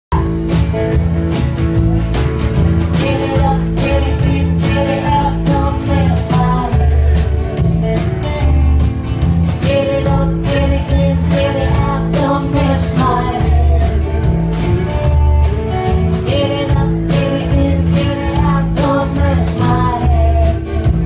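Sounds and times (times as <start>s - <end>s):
live country band playing: 0.1s - 21.0s
woman singing: 2.9s - 7.8s, 9.5s - 14.6s, 16.1s - 21.0s.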